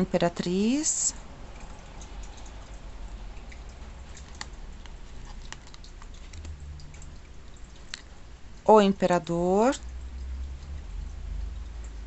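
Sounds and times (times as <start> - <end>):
low steady hum: 0.0 - 12.0
cards clicking and tapping: 4.2 - 6.5.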